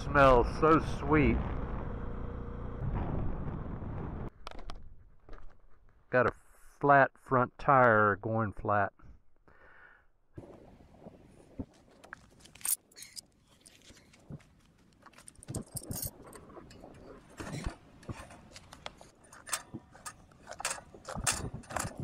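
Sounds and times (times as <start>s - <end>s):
metal tire levers clinking: 15.2s - 16.4s, 17.5s - 22.0s.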